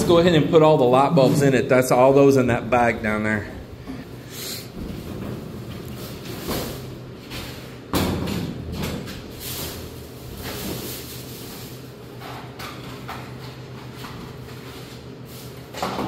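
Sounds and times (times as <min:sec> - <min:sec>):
plastic bag rustling: 0:09.3 - 0:12.0.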